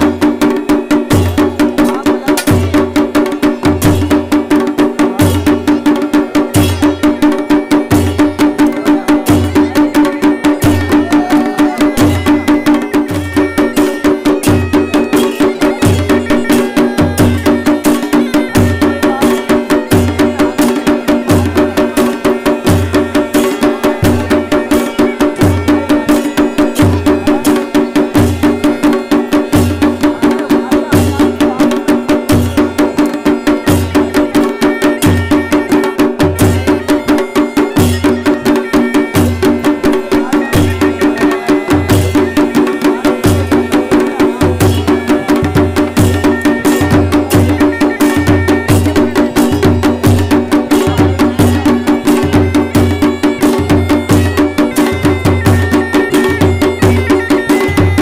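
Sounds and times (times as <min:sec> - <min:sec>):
drumbeat: 0:00.0 - 0:58.0
clicking percussion: 0:00.5 - 0:11.0.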